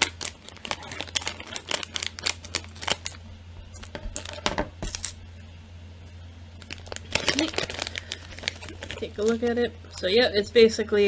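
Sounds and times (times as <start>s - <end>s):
scissors cutting plastic bag: 0.0s - 3.2s, 3.8s - 5.2s, 6.6s - 9.4s
wrapper crinkling: 0.0s - 5.2s, 6.5s - 10.1s.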